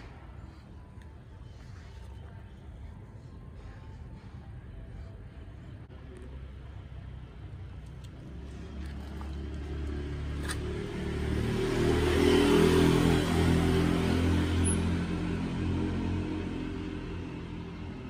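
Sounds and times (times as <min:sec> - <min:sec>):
vehicle engine passing: 0:07.8 - 0:18.0.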